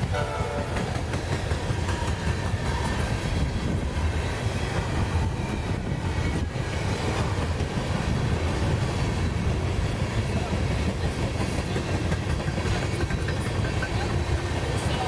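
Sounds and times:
freight train wheels rumbling: 0.0s - 15.0s.

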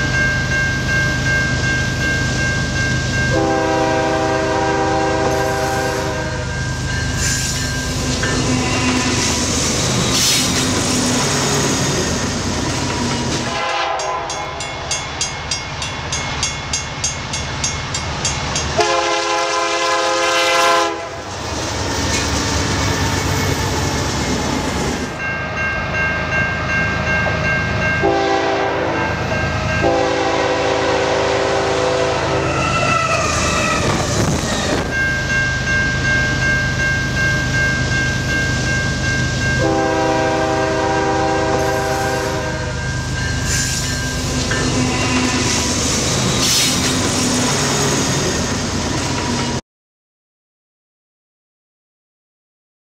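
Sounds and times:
rumble of rolling train: 0.0s - 49.6s
locomotive air horn blasts: 3.3s - 6.6s, 13.5s - 14.6s, 18.8s - 21.3s, 28.0s - 29.0s, 29.8s - 33.9s, 39.6s - 42.8s.

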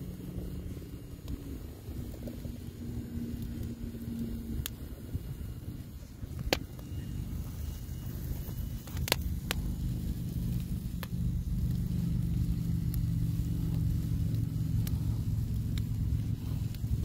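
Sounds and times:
low mechanical hum: 0.0s - 17.0s
wood fire popping: 0.0s - 17.0s.

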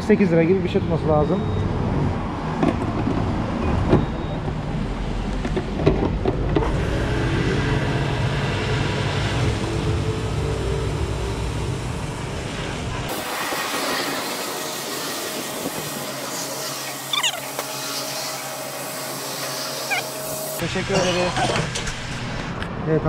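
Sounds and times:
motor hum: 6.4s - 20.6s.

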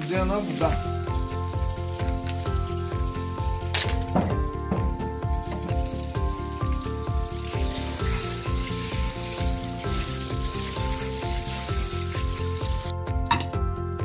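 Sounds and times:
background music with steady beat: 0.0s - 14.0s
water spraying into sink: 5.4s - 12.9s.

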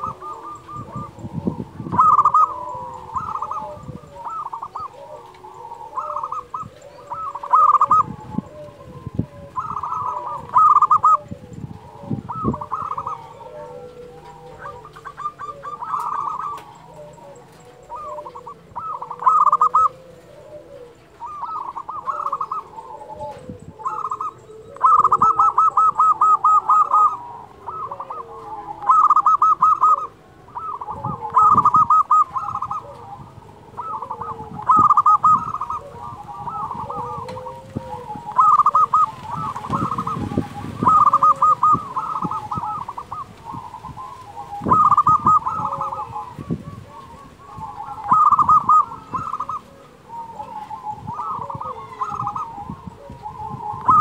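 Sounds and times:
dove cooing: 0.0s - 54.0s.

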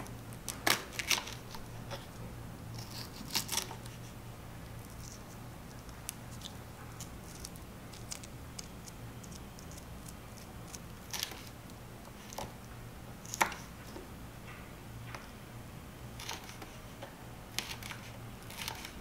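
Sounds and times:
faint low hum: 0.0s - 19.0s
knife slicing pepper: 17.5s - 19.0s.

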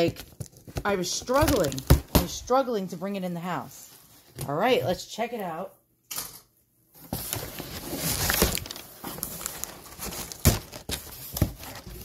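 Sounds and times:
packing paper rustling: 0.0s - 2.0s, 7.0s - 12.0s.

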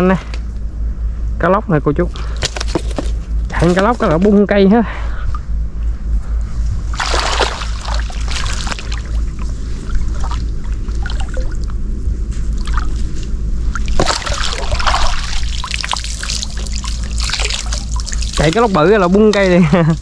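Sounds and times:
low rumble: 0.0s - 20.0s
water splashing and trickling: 6.9s - 11.8s, 12.5s - 20.0s.

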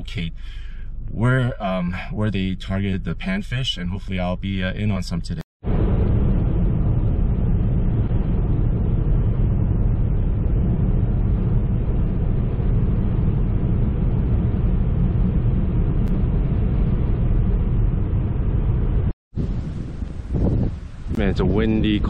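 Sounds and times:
car road rumble inside cabin: 0.0s - 22.0s.

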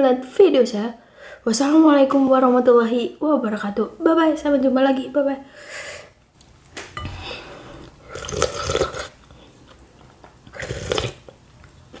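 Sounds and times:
loud slurps of soup: 7.7s - 9.2s, 10.5s - 11.3s
mouth and eating sounds: 7.8s - 12.0s.

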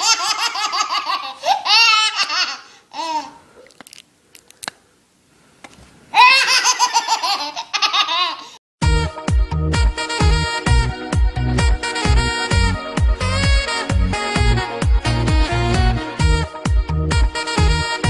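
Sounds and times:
baby laughing: 0.0s - 3.4s, 6.1s - 8.6s.

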